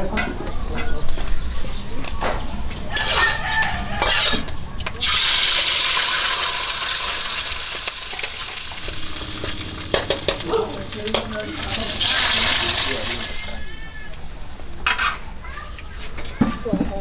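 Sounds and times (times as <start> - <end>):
egg sizzling in hot oil: 3.0 - 13.8.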